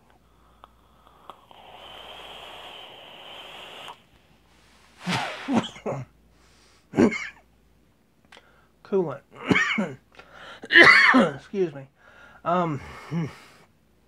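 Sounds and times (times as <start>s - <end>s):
airy hiss of inhaled air: 0.8s - 5.9s
person coughing hard: 7.0s - 7.4s, 9.4s - 10.0s, 10.6s - 11.4s.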